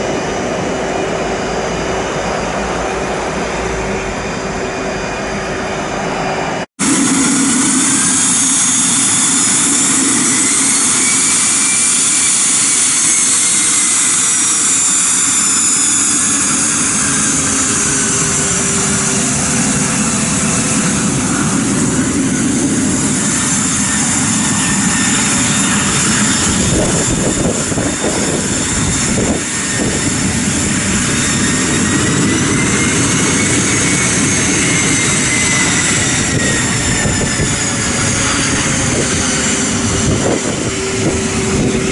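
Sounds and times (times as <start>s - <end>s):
jet engines whining: 0.0s - 41.9s.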